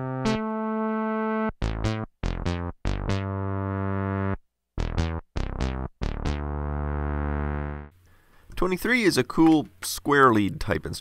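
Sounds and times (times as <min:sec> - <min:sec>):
synth bass riff: 0:00.0 - 0:07.9.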